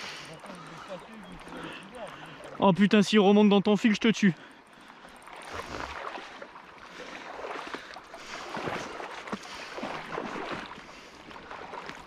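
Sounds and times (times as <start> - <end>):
fish splashing in water: 4.9 - 12.0.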